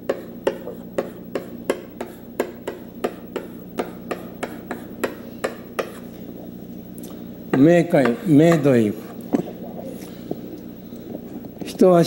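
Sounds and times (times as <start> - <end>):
chalk tapping on chalkboard: 0.0 - 6.1, 7.6 - 8.6
faint steady hum: 0.0 - 12.0.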